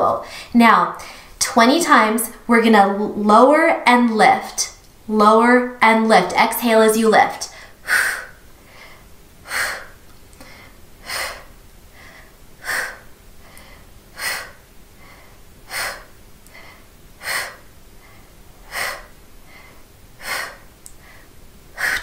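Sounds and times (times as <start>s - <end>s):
faint breaths: 7.5s - 22.0s
woman exhaling sharply: 21.8s - 22.0s.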